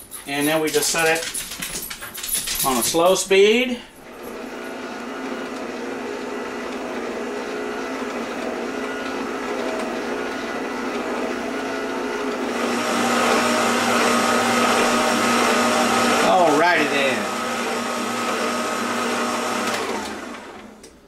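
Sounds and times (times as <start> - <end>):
stand mixer motor humming: 4.1 - 20.9.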